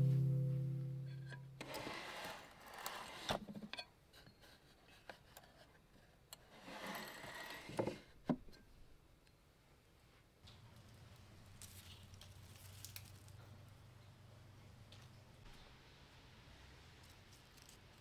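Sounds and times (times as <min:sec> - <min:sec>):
wooden drawer scraping open: 0:06.6 - 0:08.1.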